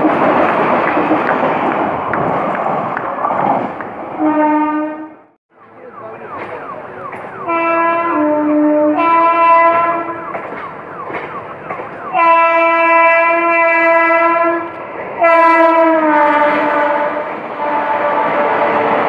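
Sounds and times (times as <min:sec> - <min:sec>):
train rumble: 0:00.0 - 0:19.0
locomotive horn blasts: 0:04.2 - 0:05.3, 0:06.3 - 0:11.4, 0:12.0 - 0:19.0.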